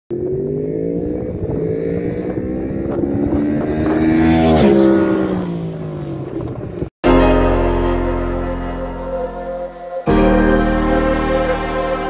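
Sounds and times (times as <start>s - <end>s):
motorcycle passing by: 0.1s - 6.9s.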